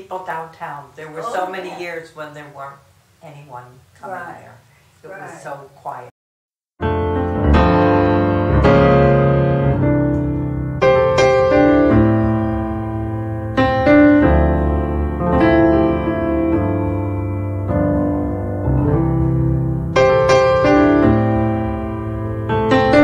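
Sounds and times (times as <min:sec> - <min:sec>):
slow piano music: 0:06.8 - 0:23.0.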